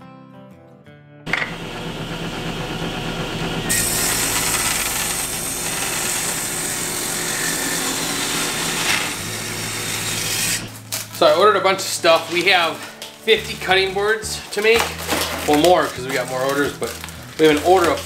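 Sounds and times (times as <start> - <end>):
table saw cutting wood: 1.3 - 11.1.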